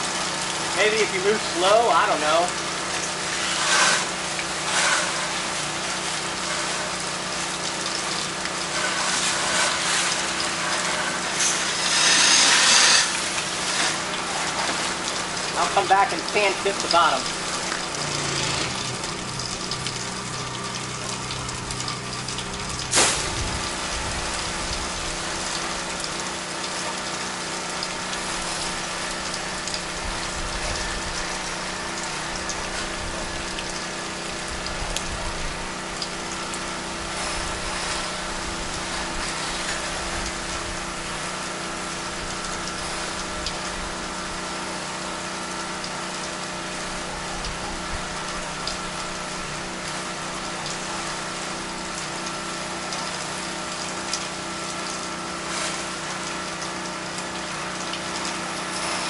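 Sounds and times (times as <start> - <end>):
water hissing from wand: 0.0 - 34.1, 47.8 - 59.0
pressure washer running: 0.0 - 59.0.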